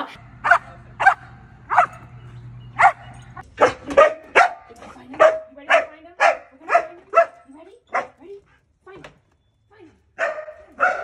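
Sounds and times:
dog barking: 0.4s - 2.2s, 2.8s - 8.2s, 10.2s - 11.0s.

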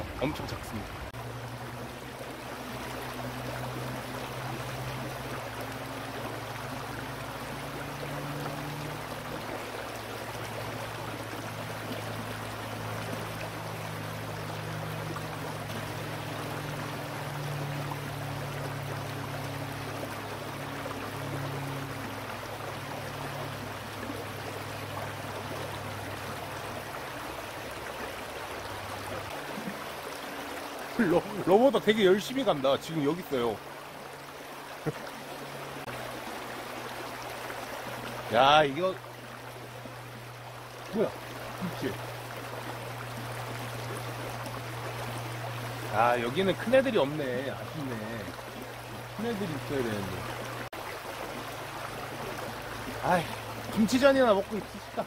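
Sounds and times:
low droning hum: 0.0s - 29.8s
river water running over stones: 0.0s - 55.0s.

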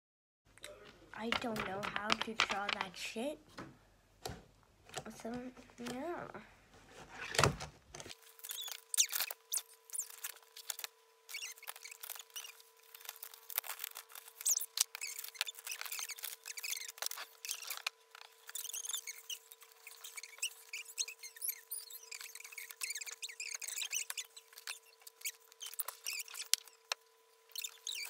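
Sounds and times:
paper being cut and rustled: 7.2s - 28.0s.

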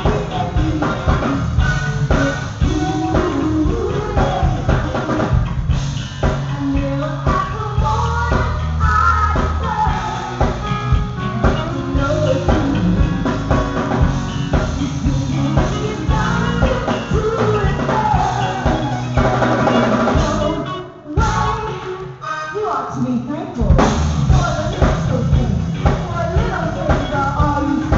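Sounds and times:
drum kit: 0.0s - 22.2s, 23.6s - 27.9s
bass: 0.0s - 27.9s
electric guitar: 0.0s - 27.9s
woman singing lead: 0.0s - 27.9s
backing singers: 6.6s - 20.6s.

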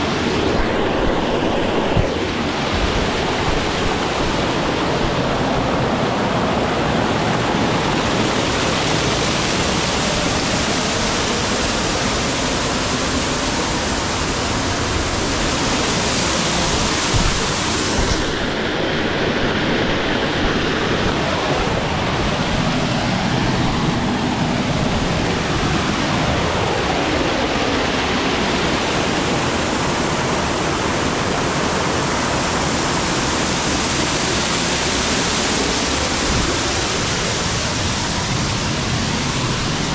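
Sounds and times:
waterfall rushing: 0.0s - 39.9s.

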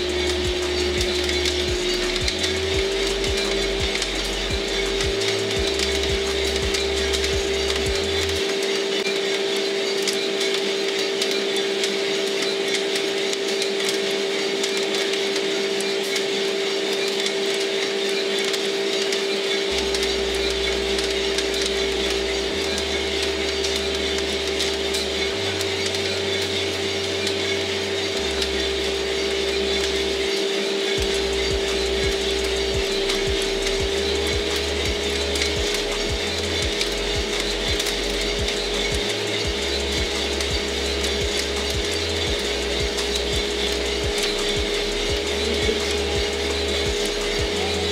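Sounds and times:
coffee roaster motor hum: 0.0s - 47.9s.

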